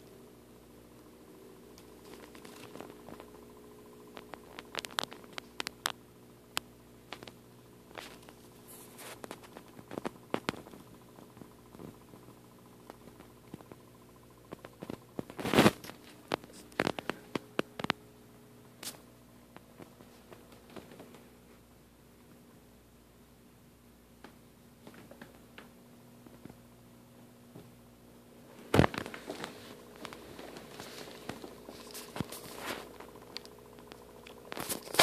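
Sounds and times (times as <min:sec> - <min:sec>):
steady low hum: 0:00.0 - 0:35.0
handling clicks and rustles: 0:01.7 - 0:03.4, 0:28.7 - 0:35.0.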